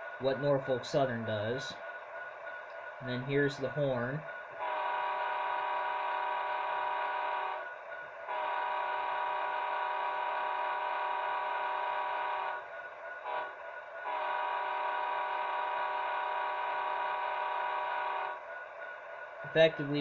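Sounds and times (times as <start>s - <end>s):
model locomotive horn blasts: 4.6s - 7.6s, 8.3s - 12.6s, 13.2s - 18.4s.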